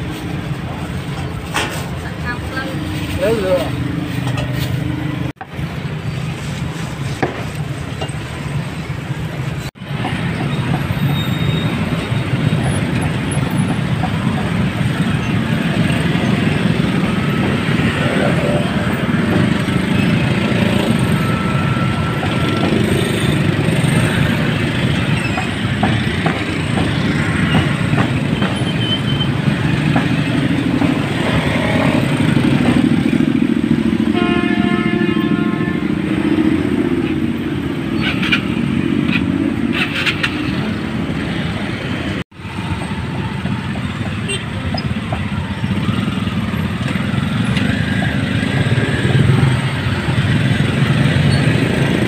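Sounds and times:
motorbike and car engines passing: 7.6s - 52.0s
vehicle horn: 34.1s - 36.1s.

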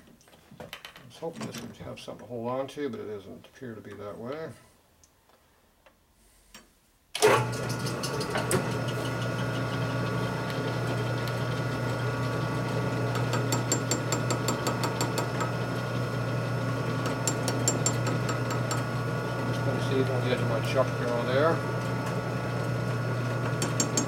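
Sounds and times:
electric motor humming with gear whine: 8.0s - 24.0s.

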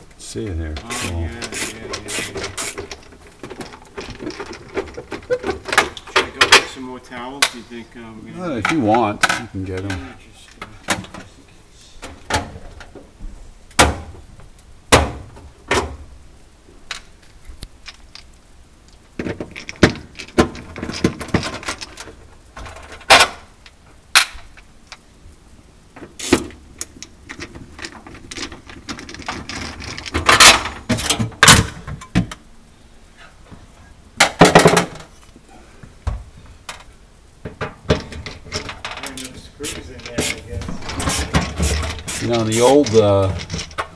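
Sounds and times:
panel scraping and rattling: 0.7s - 6.8s, 37.5s - 43.9s
screwdriver and metal parts clicking: 38.0s - 43.9s.

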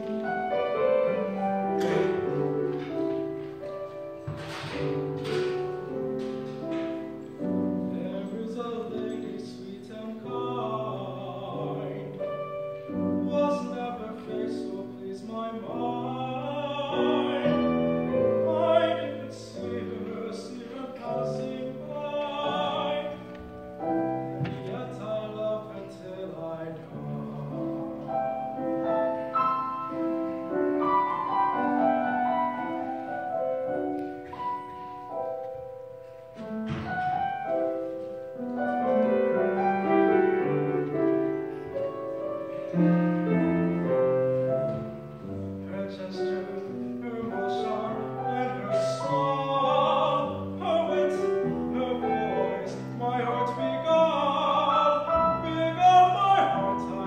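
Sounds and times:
grand piano accompaniment: 0.0s - 57.0s
man singing operatically: 7.8s - 12.2s, 13.0s - 28.0s, 45.6s - 57.0s.

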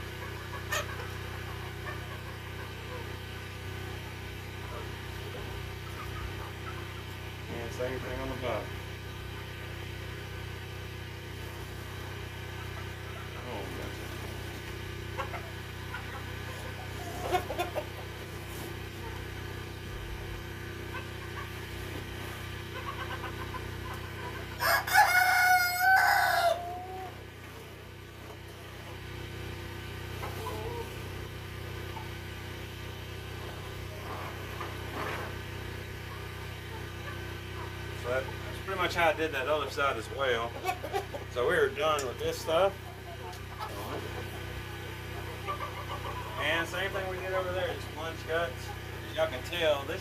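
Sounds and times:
hens clucking: 0.0s - 50.0s
rooster crowing: 24.6s - 27.1s.

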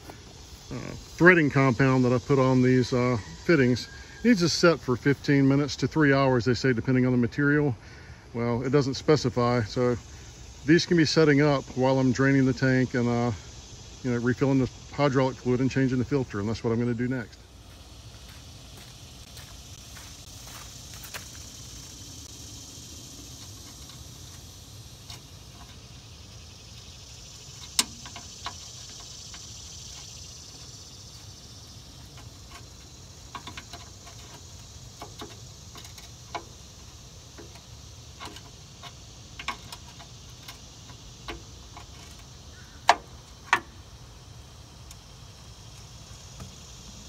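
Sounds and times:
faint high hiss: 0.0s - 47.0s.

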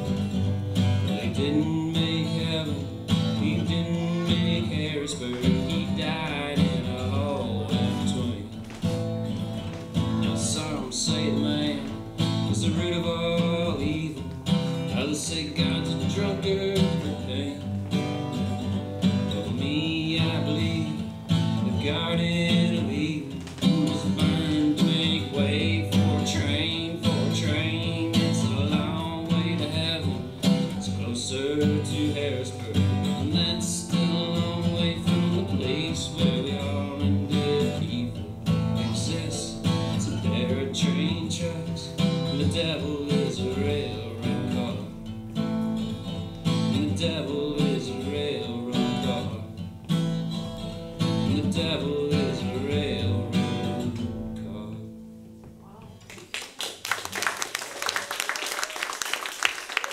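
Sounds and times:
acoustic guitar strumming: 0.0s - 55.7s.

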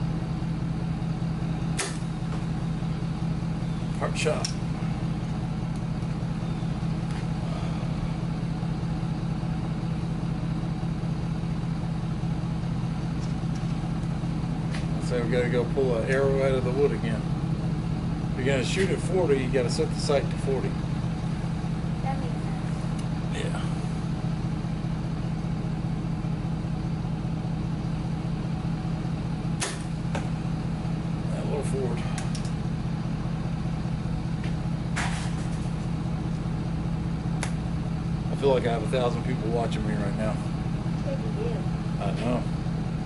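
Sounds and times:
low engine drone: 0.0s - 43.0s
low machine hum: 0.0s - 43.0s.

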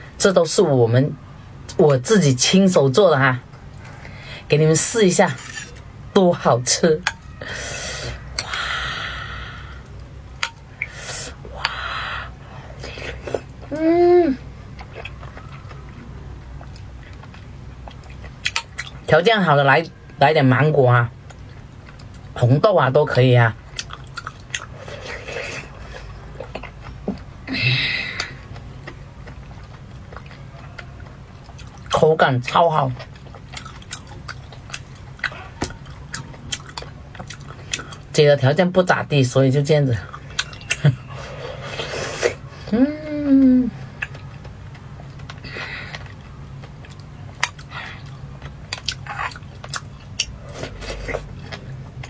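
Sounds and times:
low steady hum: 0.0s - 52.0s
slurping and chewing: 14.6s - 19.0s, 23.8s - 27.3s, 32.8s - 38.1s, 40.1s - 42.5s, 44.0s - 52.0s.

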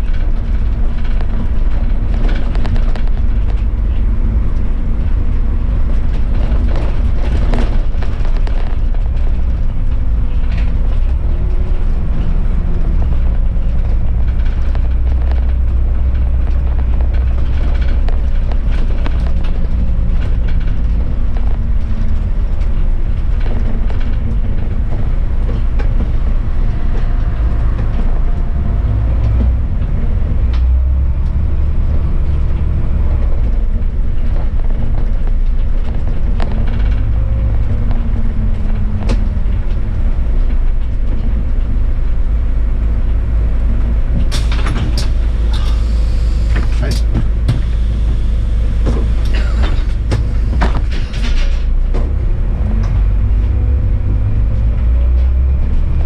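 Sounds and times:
clicks and rattles: 0.0s - 31.4s, 32.4s - 41.8s
bus engine and tyres rumbling: 0.0s - 56.0s.

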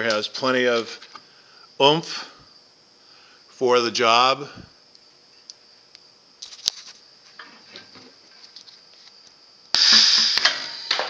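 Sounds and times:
air cylinder click: 9.7s - 11.0s
compressed air rush: 9.8s - 11.0s.

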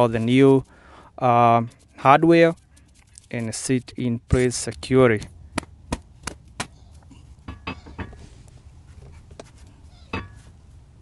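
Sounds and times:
metal tools clicking and tapping: 7.4s - 8.2s.

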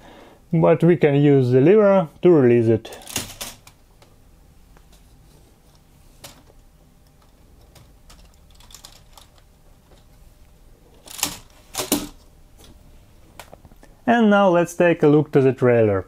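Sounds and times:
plastic toy parts clicking: 7.7s - 9.4s.

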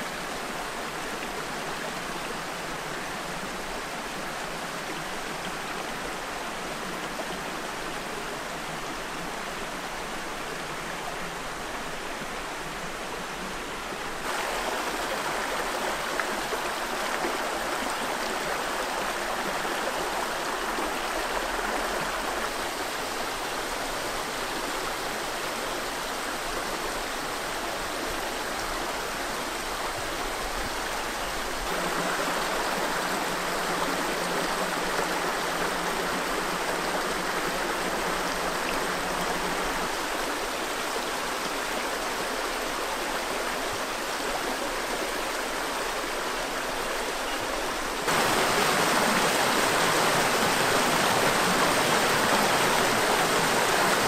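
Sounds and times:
creek splashing over stones: 31.0s - 54.0s.

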